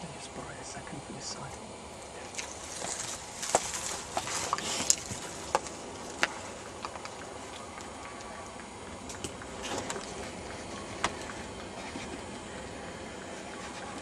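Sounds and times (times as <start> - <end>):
leaves and twigs rustling: 2.0 - 8.4
twigs snapping: 2.3 - 7.9.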